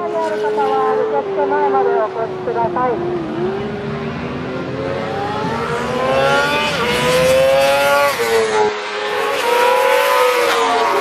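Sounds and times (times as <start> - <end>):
racing motorcycle engine accelerating: 1.9 - 11.0.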